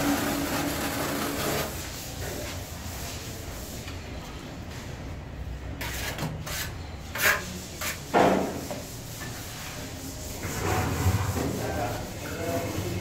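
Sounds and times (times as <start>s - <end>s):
trowel scraping tile adhesive: 0.0s - 2.6s, 5.8s - 13.0s.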